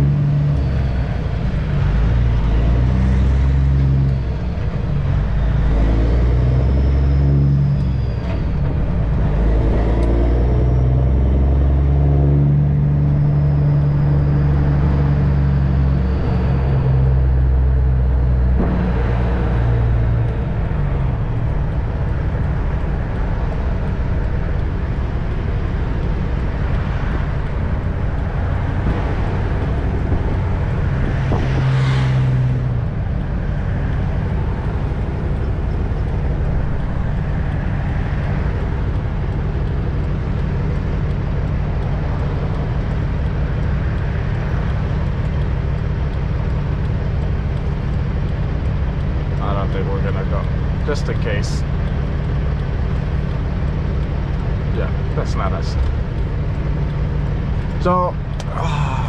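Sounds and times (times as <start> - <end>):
road and tyre noise: 0.0 - 59.0
truck diesel engine running: 0.0 - 59.0
rush of noise: 57.6 - 59.0.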